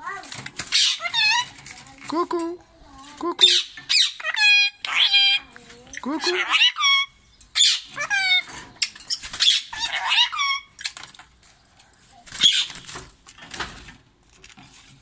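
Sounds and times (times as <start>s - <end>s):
wings flapping: 0.1s - 2.1s, 8.3s - 10.1s, 10.8s - 14.9s
parakeet calling: 0.7s - 1.6s, 3.4s - 11.0s, 12.3s - 12.8s.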